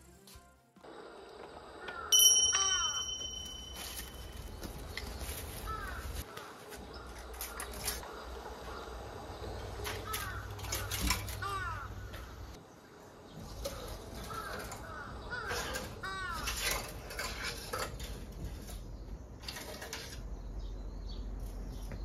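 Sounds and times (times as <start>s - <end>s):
crow cawing: 1.8s - 2.9s, 5.6s - 6.6s, 10.0s - 12.4s, 14.3s - 16.6s
twig broom brushing: 3.0s - 8.1s.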